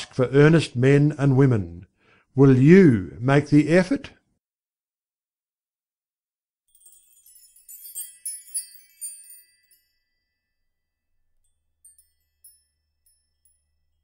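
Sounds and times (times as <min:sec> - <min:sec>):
high bell-like chime notes: 0:06.7 - 0:14.0.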